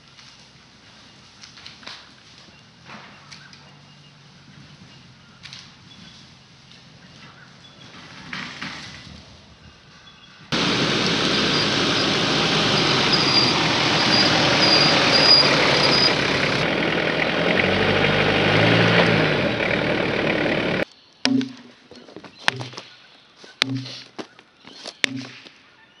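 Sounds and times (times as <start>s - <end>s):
vehicle engine running: 2.2s - 7.8s, 10.5s - 20.8s
rushing noise over rough ground: 10.5s - 20.8s.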